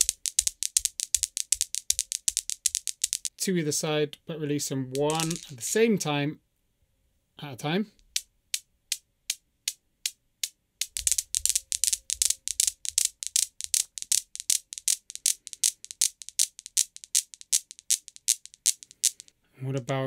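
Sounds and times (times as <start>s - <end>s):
steel balls clacking: 0.0s - 3.3s, 4.8s - 5.9s, 8.0s - 19.3s.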